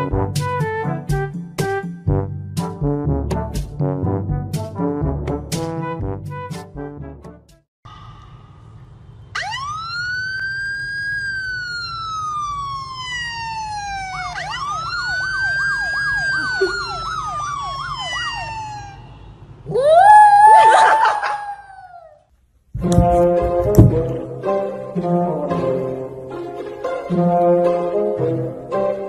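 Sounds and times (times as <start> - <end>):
siren wailing and yelping: 9.4 - 22.2.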